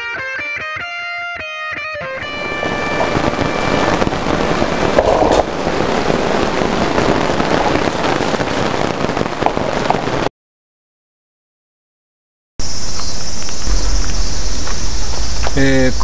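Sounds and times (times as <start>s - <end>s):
torrential rain on a tarp: 2.2s - 10.3s, 13.2s - 16.0s.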